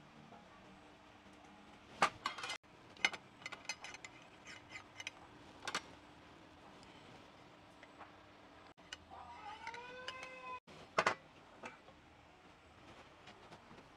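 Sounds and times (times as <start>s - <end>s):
utensils clinking against dishes: 2.0s - 5.8s.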